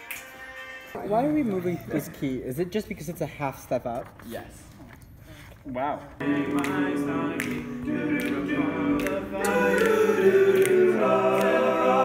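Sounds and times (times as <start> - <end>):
men's choir singing a cappella: 6.2 - 12.0.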